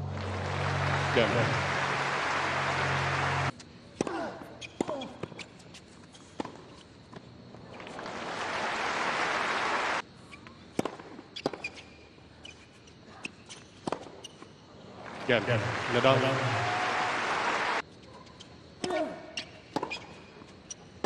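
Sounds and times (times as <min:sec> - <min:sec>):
crowd applause: 0:00.0 - 0:03.5, 0:07.8 - 0:10.0, 0:15.0 - 0:17.8
rackets hitting tennis ball: 0:02.7 - 0:06.8, 0:10.6 - 0:11.7.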